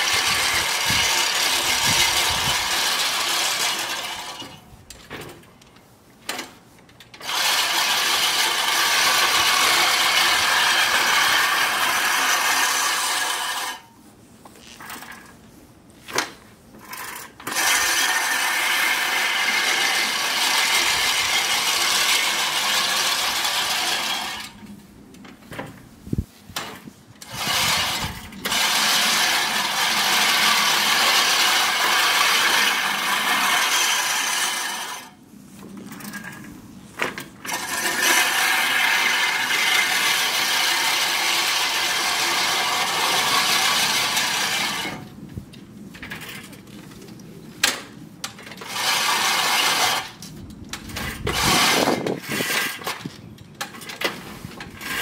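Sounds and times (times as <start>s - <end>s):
reel mower cutting grass: 0.0s - 4.6s, 7.2s - 13.9s, 16.8s - 24.6s, 27.2s - 45.1s, 48.3s - 55.0s.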